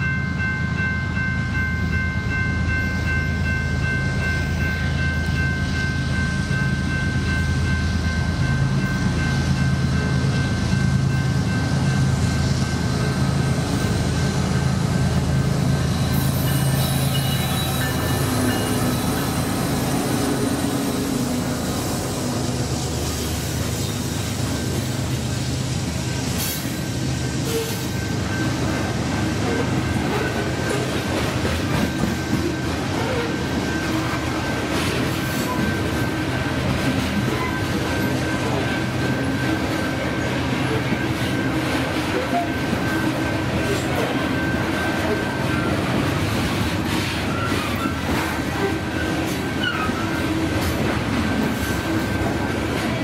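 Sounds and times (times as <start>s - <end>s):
freight train rumbling past: 0.0s - 53.0s
thin wheel squeal: 49.5s - 50.4s.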